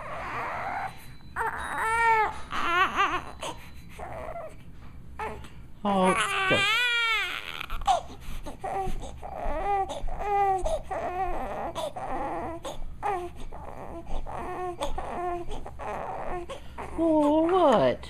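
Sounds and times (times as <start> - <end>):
baby crying: 0.0 - 4.6, 5.2 - 17.3.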